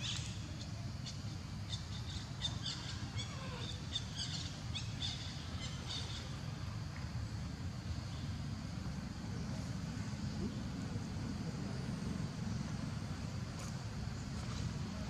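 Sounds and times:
small birds chirping: 0.0s - 11.4s
low outdoor rumble: 0.0s - 15.0s.

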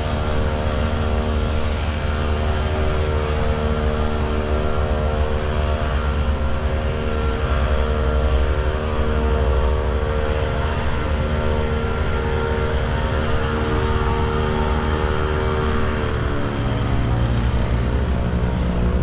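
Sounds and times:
low rumble: 0.0s - 19.0s
steady mechanical hum: 0.0s - 19.0s.

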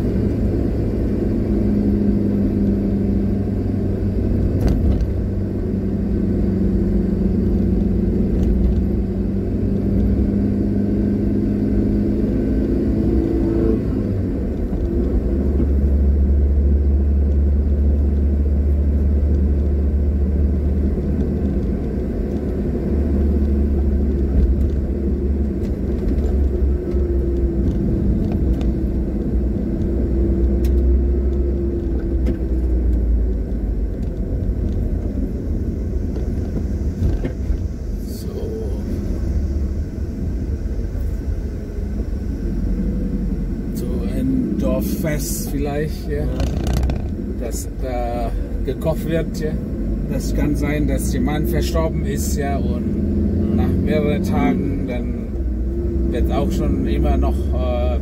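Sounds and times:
car engine from inside cabin: 0.0s - 58.0s
tyre rumble: 46.1s - 47.3s.

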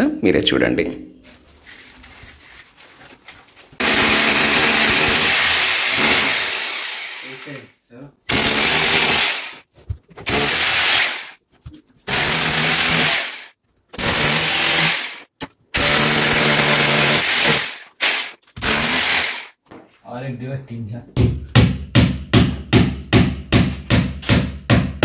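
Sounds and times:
electric drill boring into wall: 3.8s - 7.6s, 8.3s - 9.6s, 10.2s - 11.4s, 12.1s - 19.6s.

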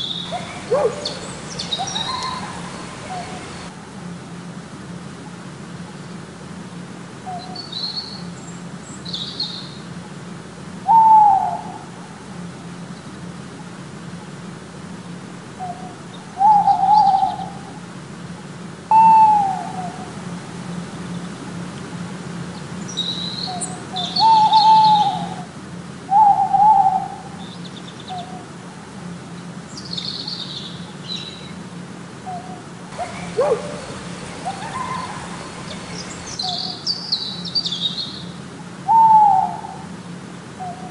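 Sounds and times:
faint bird chirps: 0.0s - 3.7s, 32.3s - 39.3s
owl hooting: 0.0s - 3.7s, 10.8s - 11.9s, 15.6s - 17.7s, 18.9s - 20.1s, 23.4s - 25.5s, 26.1s - 27.4s, 32.2s - 37.3s, 38.8s - 39.9s, 40.6s - 40.9s
steady low hum: 0.0s - 9.1s, 17.4s - 38.9s.

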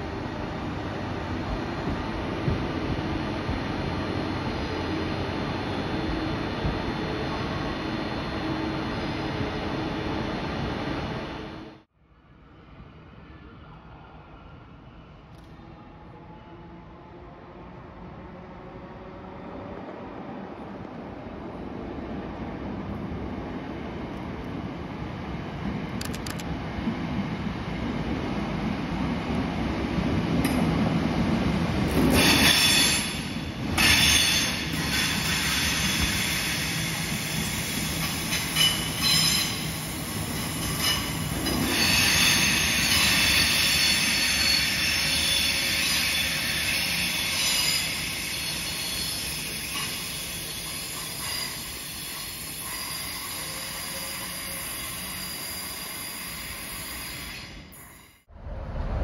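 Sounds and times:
train wheels squealing: 32.1s - 58.3s.

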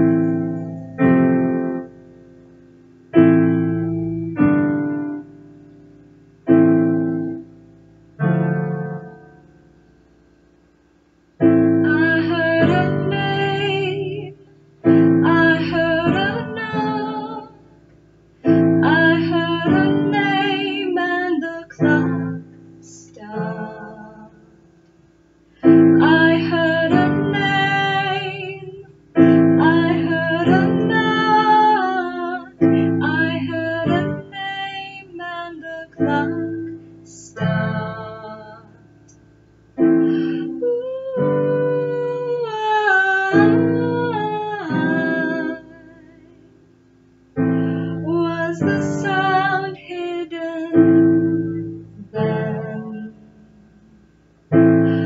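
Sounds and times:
digital piano chords: 0.0s - 55.0s
woman singing slow song: 11.4s - 24.8s, 25.6s - 46.7s, 47.4s - 55.0s.

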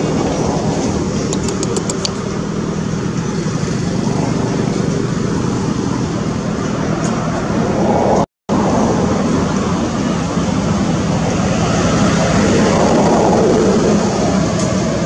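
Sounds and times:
sharp clicks: 1.2s - 2.2s.

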